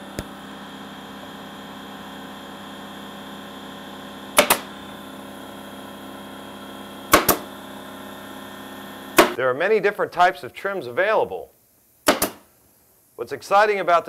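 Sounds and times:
pin nailer double crack: 4.4 - 4.8, 7.1 - 7.5, 9.2 - 9.4, 12.0 - 12.5
faint steady hum: 9.3 - 14.0.

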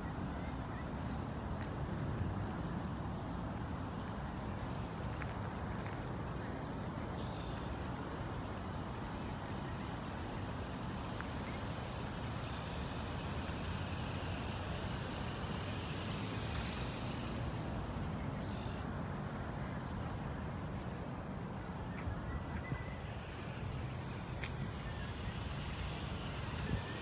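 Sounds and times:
distant city traffic rumble: 0.0 - 27.0
high hiss: 11.2 - 18.7, 22.7 - 27.0.

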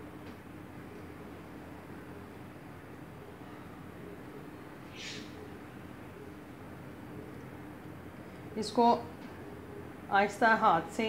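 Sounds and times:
faint room hum and hiss: 0.0 - 11.0.

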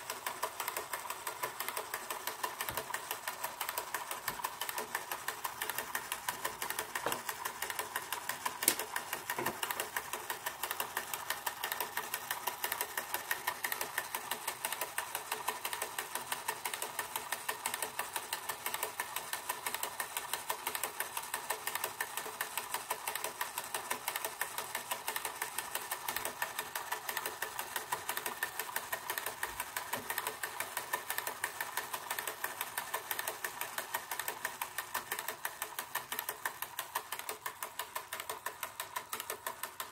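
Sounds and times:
rapid mechanical ticking: 0.0 - 39.9.

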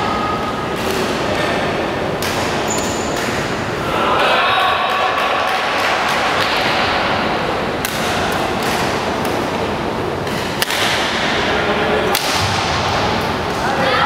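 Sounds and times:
sports hall background noise: 0.0 - 14.0
rackets hitting shuttlecock: 7.8 - 11.5, 12.1 - 13.6.

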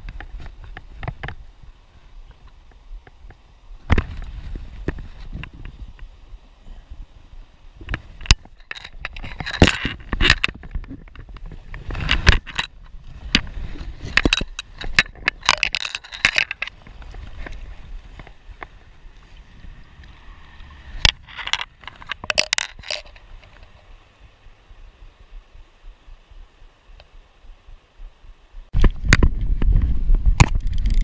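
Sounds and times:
scraping and crunching on creek bank: 0.0 - 6.2, 7.8 - 24.3.

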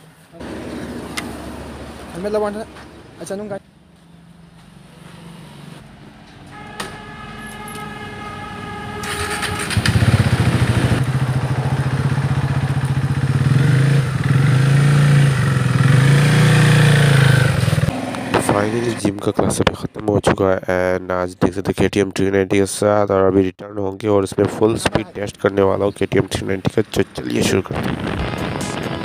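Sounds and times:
motorcycle engine running: 8.7 - 19.3.

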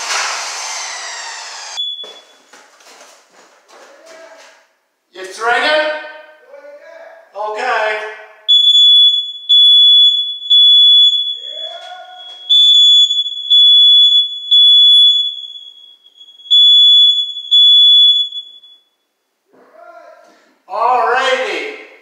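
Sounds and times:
smoke alarm beeping: 1.1 - 2.6, 8.5 - 19.2.

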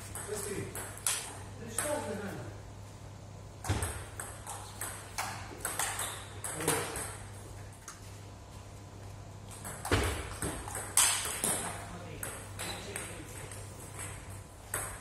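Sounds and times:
table tennis ball hits: 0.1 - 2.1, 3.6 - 7.3, 9.5 - 15.0.

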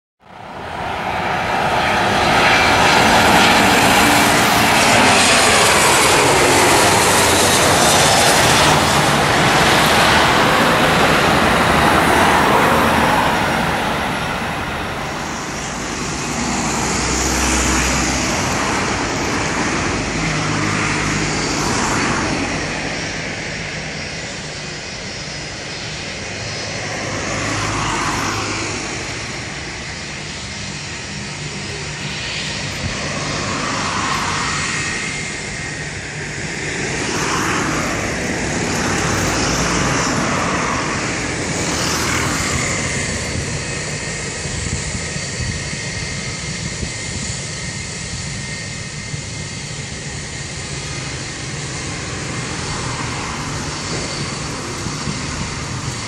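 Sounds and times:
jet airliner passing overhead: 0.2 - 56.0
jet noise on runway: 0.2 - 56.0.

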